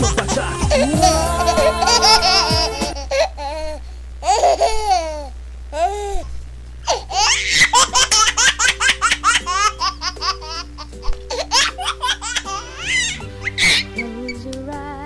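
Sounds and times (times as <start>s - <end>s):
light music with bass line: 0.0s - 3.1s, 7.8s - 15.0s
baby giggling: 0.0s - 6.3s, 6.9s - 14.1s.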